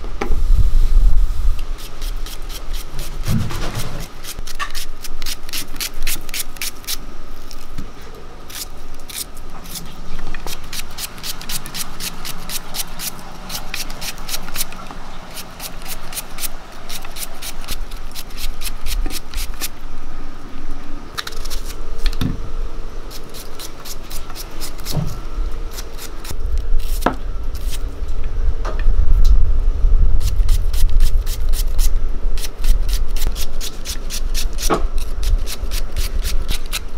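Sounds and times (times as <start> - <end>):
low rumble: 0.0 - 1.8, 25.0 - 33.3
knife slicing onion: 1.8 - 7.0, 8.5 - 19.7, 23.1 - 27.8, 30.2 - 36.9.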